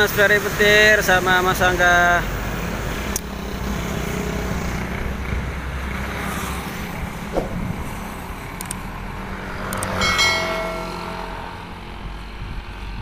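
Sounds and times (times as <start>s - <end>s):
motorcycles passing: 0.0s - 13.0s
truck passing: 0.0s - 13.0s
sharp clicks: 8.6s - 8.9s, 9.6s - 10.0s
ringing chime: 10.0s - 11.6s.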